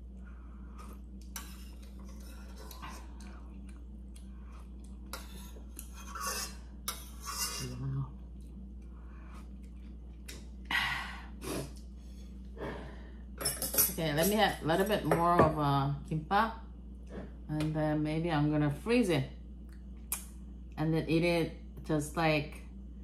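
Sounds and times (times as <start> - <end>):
metal ladle scraping steel pot: 5.2 - 7.8.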